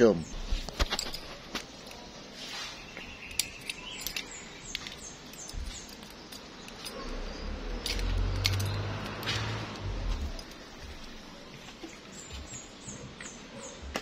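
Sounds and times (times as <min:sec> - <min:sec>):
hose fittings clicking and rattling: 0:00.6 - 0:02.1, 0:03.2 - 0:11.2
bird chirps: 0:01.7 - 0:08.8.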